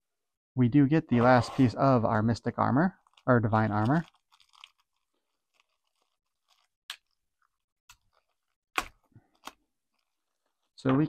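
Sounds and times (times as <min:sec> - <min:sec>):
plastic bag crinkling: 0:02.9 - 0:08.6, 0:09.2 - 0:10.8.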